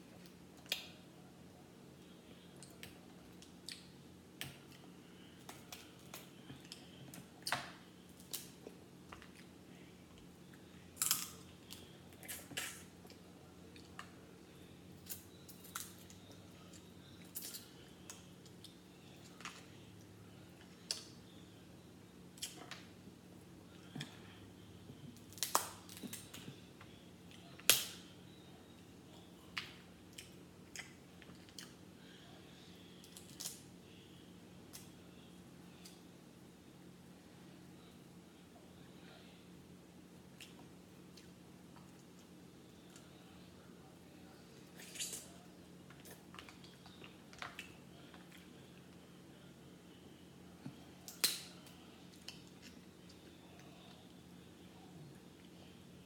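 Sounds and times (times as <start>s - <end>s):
crab shells cracking: 11.0s - 11.4s, 25.3s - 26.2s.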